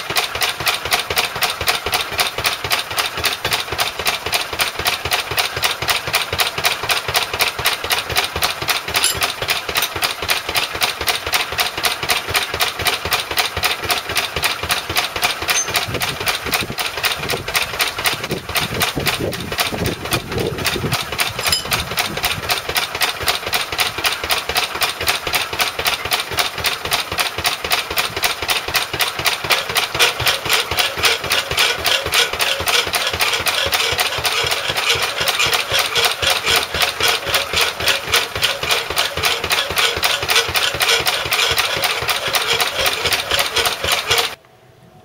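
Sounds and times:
power hacksaw: 2.4s - 10.9s, 12.8s - 16.0s, 21.2s - 22.0s, 25.0s - 44.4s
stationary engine running: 15.5s - 16.0s, 28.5s - 44.4s.

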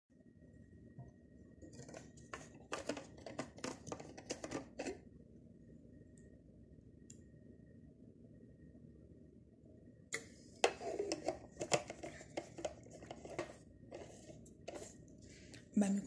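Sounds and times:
low steady hum: 0.1s - 16.0s
scratchy rustling and scraping: 1.6s - 5.0s, 10.7s - 15.0s.

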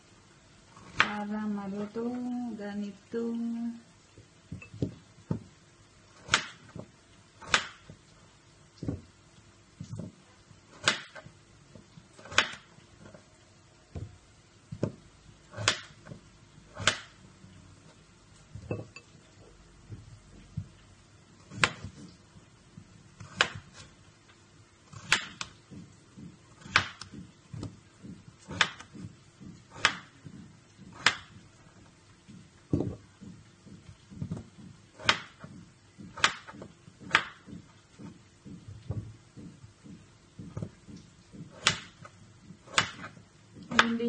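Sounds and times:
knife chopping on cutting board: 6.2s - 8.0s, 9.9s - 12.7s, 14.8s - 17.2s, 21.4s - 22.1s, 23.2s - 23.9s, 24.9s - 44.0s.

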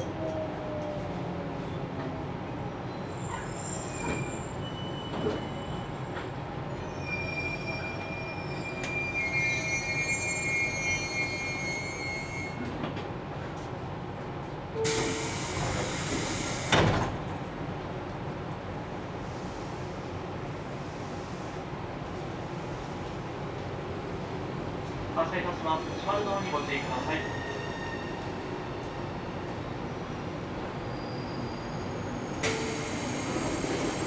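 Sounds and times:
wheel and brake squeals: 2.8s - 12.8s, 26.8s - 28.4s, 30.8s - 34.0s.

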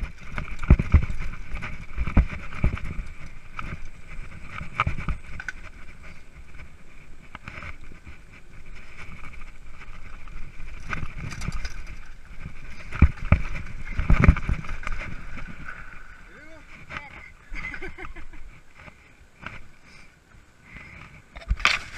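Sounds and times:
bike clicks: 0.0s - 15.8s
mountain bike rattling on dirt: 0.0s - 19.8s, 20.7s - 21.9s.

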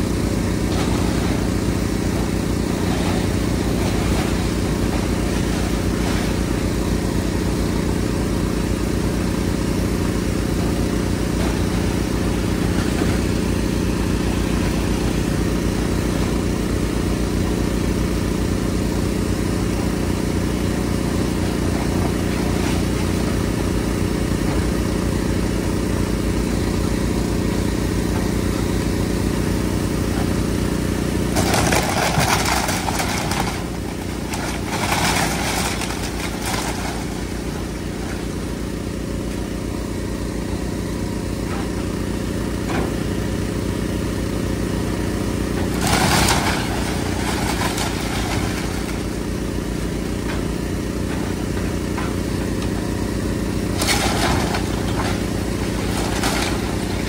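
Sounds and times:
excavator diesel engine running: 0.0s - 57.0s
wall crunching and cracking: 30.3s - 39.2s, 45.4s - 57.0s.

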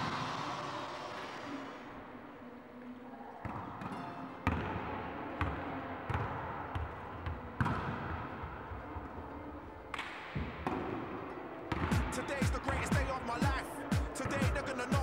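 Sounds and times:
ball striking the court: 3.4s - 4.8s, 5.4s - 8.4s, 9.9s - 11.1s, 11.7s - 13.1s.

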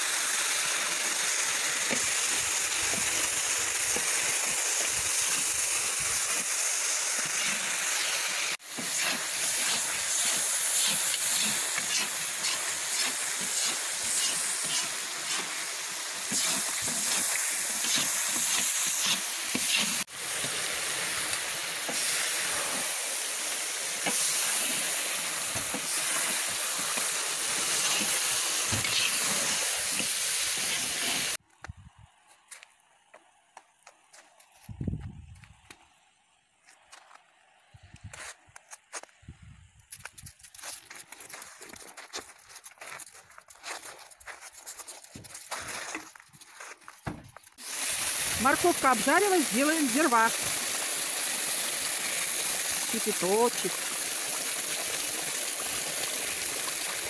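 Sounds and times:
meat and carrots sizzling in oil: 0.0s - 31.4s, 47.6s - 57.0s.

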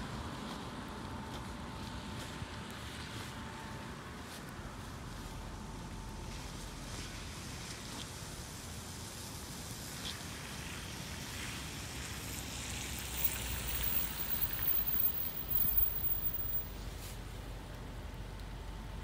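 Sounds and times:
car tyres on wet road: 4.7s - 19.0s.

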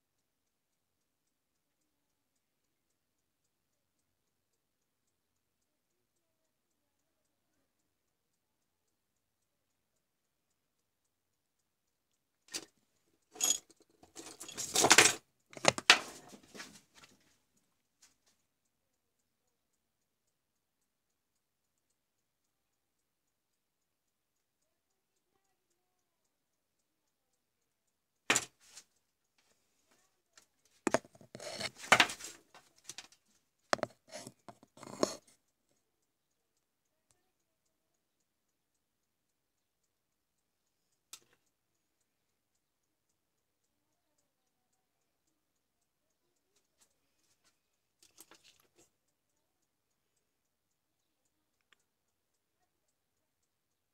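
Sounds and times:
faint regular ticking: 0.0s - 53.9s
clicking and rustling of handling: 12.4s - 18.4s, 28.3s - 35.4s, 46.6s - 48.9s.

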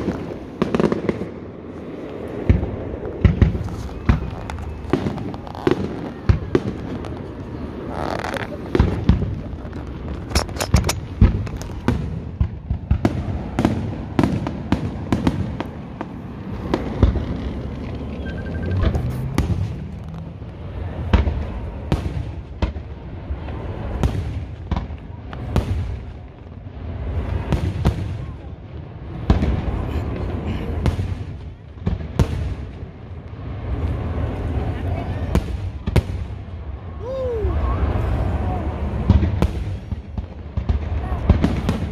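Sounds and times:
fireworks bangs and crackles: 0.0s - 41.9s
low rumble: 15.6s - 22.0s.

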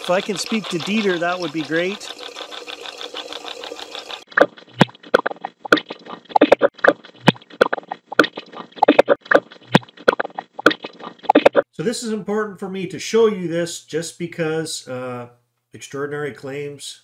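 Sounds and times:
running water: 0.0s - 11.6s.

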